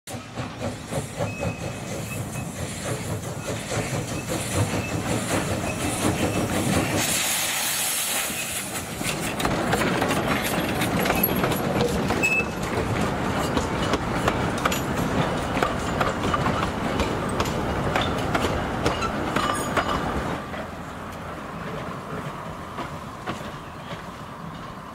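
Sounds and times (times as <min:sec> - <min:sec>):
carriages clattering over rail joints: 0:00.1 - 0:07.0, 0:08.4 - 0:20.7
loud hiss of steam: 0:00.1 - 0:11.0
steam locomotive chuffing: 0:00.1 - 0:24.9.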